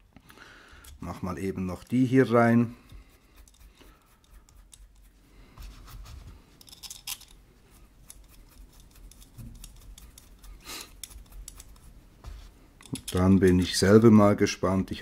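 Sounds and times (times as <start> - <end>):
small metal parts scraping: 6.6 - 7.4, 8.0 - 11.9, 12.8 - 13.8.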